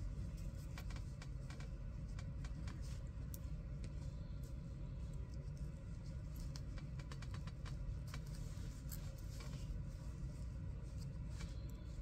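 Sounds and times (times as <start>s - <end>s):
cloth rustling and ticking: 0.0s - 12.0s
steady low hum: 0.0s - 12.0s.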